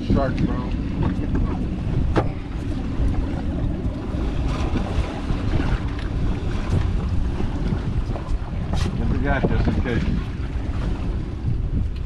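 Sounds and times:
water washing against boat hull: 0:00.0 - 0:12.0
wind buffeting microphone: 0:00.0 - 0:12.0.

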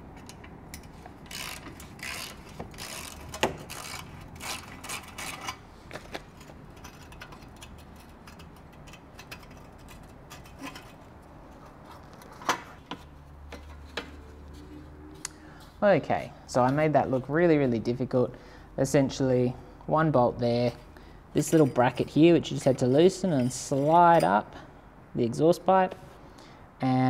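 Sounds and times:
metal clicks: 0:00.1 - 0:11.0
hand tool clicking and scraping: 0:00.1 - 0:14.2.

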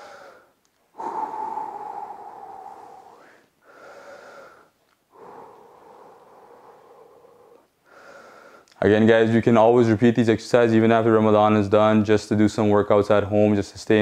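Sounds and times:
man breathing heavily: 0:00.0 - 0:08.8.

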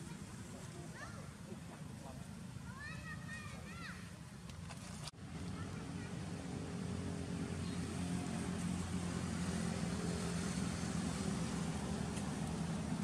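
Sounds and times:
outdoor background noise: 0:00.0 - 0:13.0
engine droning: 0:05.2 - 0:13.0.

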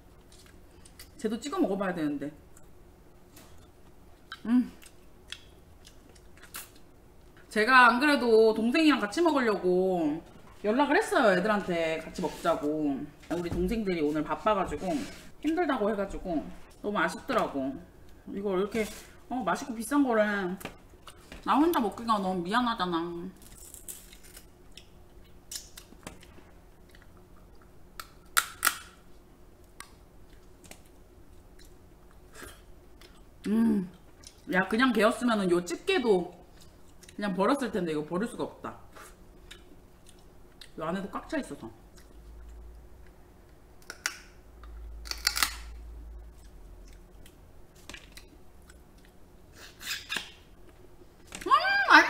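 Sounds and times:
crab shell cracking: 0:45.0 - 0:45.8.

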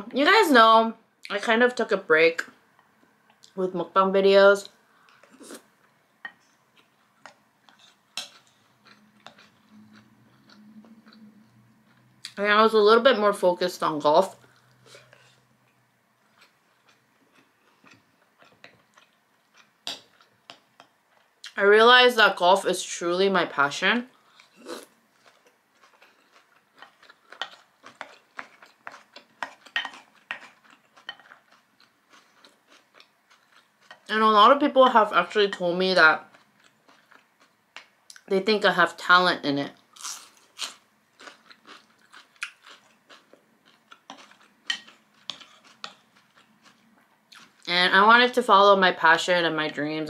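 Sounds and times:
chewing rice: 0:06.7 - 0:12.4, 0:16.2 - 0:21.5, 0:24.2 - 0:34.1, 0:36.2 - 0:37.9, 0:40.0 - 0:47.7.

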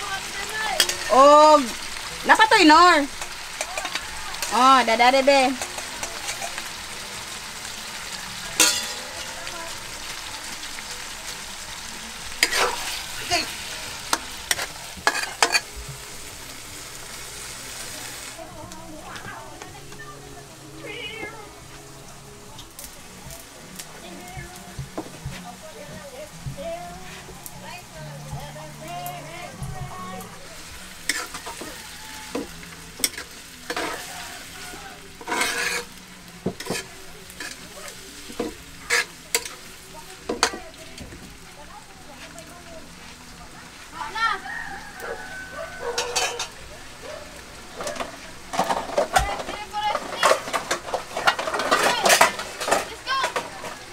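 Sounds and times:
meat and onions sizzling in wok: 0:00.0 - 0:53.9
utensil scraping a pan: 0:12.4 - 0:15.8, 0:31.0 - 0:39.6, 0:45.8 - 0:46.6, 0:47.7 - 0:53.9
spatula scraping and knocking pan: 0:35.2 - 0:37.6, 0:47.8 - 0:53.8.

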